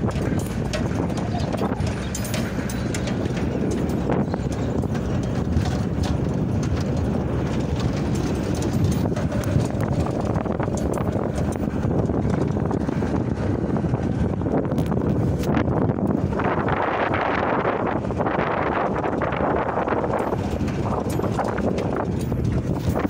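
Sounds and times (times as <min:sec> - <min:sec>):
metal cage rattling: 0:00.0 - 0:12.8, 0:20.0 - 0:23.0
engine and tyres rumbling: 0:00.0 - 0:23.0.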